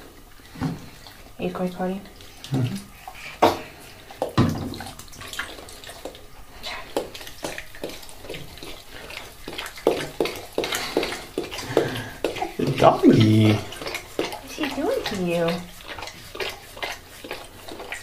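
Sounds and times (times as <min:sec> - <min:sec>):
bathwater splashing in tub: 0:00.0 - 0:18.0
dog lapping water: 0:00.0 - 0:18.0.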